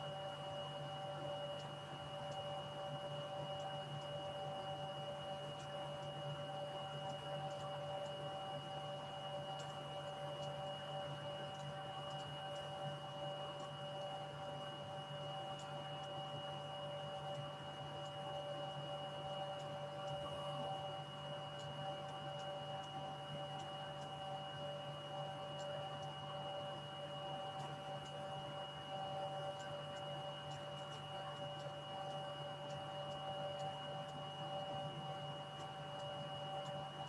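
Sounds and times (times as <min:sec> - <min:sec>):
faint ticks: 0:07.1 - 0:08.2, 0:11.6 - 0:14.1, 0:29.5 - 0:37.0.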